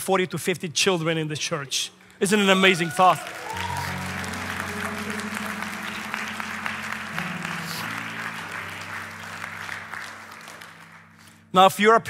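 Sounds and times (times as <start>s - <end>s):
congregation applauding: 2.2s - 11.5s
soft sustained band chords: 3.9s - 11.6s.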